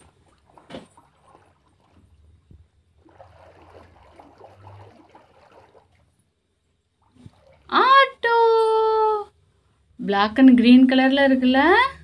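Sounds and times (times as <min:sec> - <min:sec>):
water sloshing in a bowl: 0:00.0 - 0:08.1.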